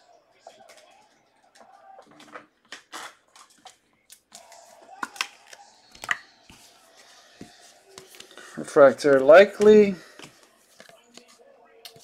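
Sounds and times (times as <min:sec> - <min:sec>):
cards rustling and sliding: 0:04.3 - 0:12.0.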